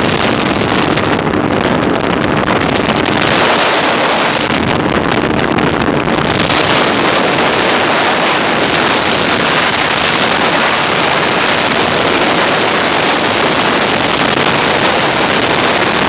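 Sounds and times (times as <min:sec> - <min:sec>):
airflow buffeting microphone: 0:00.0 - 0:16.0.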